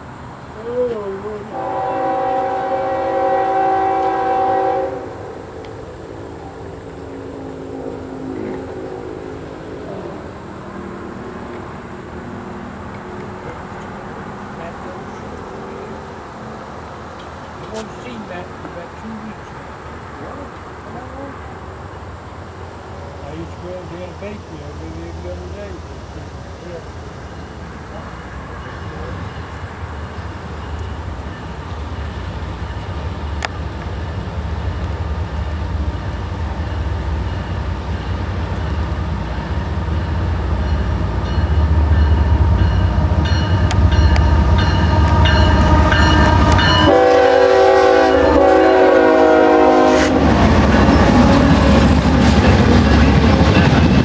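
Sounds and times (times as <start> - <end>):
diesel train engine rumble: 0.0 - 54.0
locomotive horn chord: 1.5 - 5.5, 42.6 - 50.4
train wheel clatter: 50.2 - 54.0.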